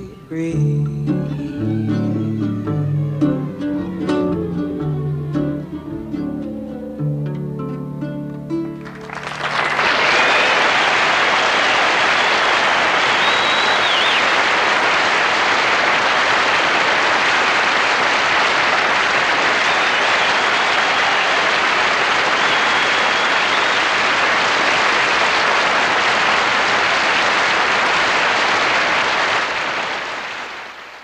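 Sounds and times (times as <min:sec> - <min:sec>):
audience applauding: 0:08.7 - 0:31.0.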